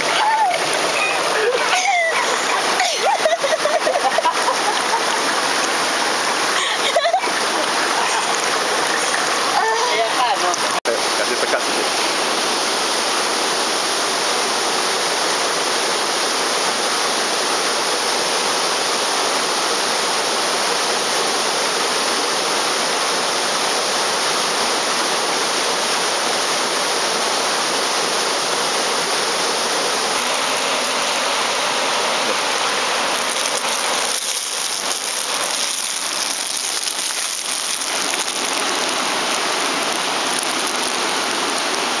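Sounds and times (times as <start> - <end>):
stream rushing over cascade: 0.0 - 42.0.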